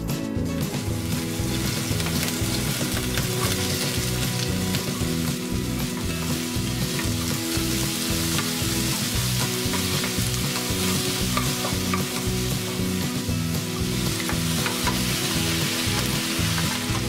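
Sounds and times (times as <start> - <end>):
soft background music: 0.0 - 17.0
vegetables sizzling in oil: 0.6 - 17.0.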